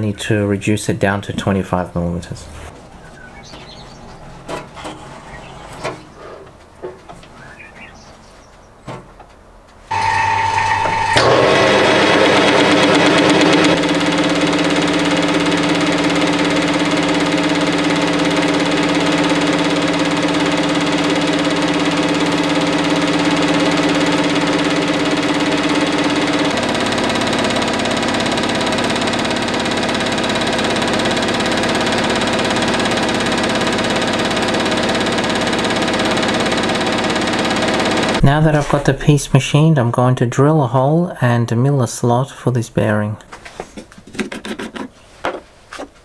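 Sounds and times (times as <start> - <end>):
turning tool cutting metal: 9.9 - 39.3
metal lathe humming: 9.9 - 39.4.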